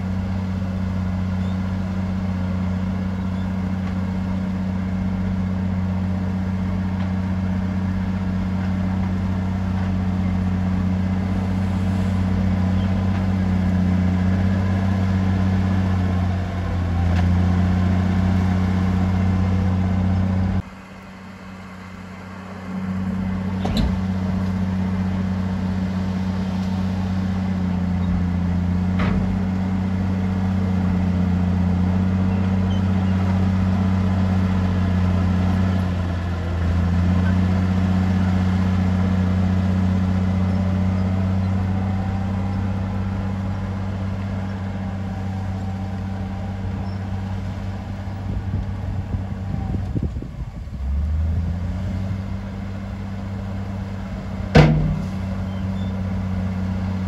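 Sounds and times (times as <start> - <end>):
diesel engine deep hum: 0.0 - 57.0.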